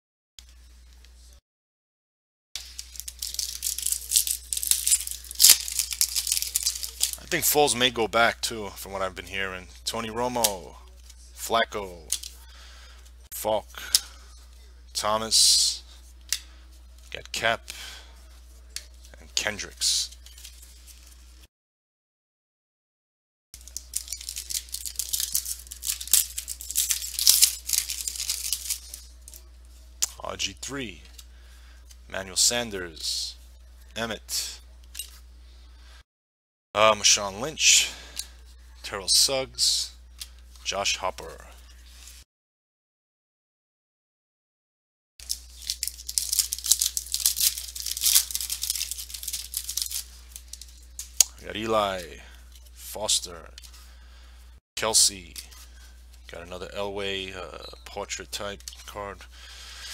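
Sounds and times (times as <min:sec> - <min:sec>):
foil wrapper crinkling and tearing: 0:02.6 - 0:07.4, 0:23.6 - 0:29.4, 0:45.2 - 0:51.3.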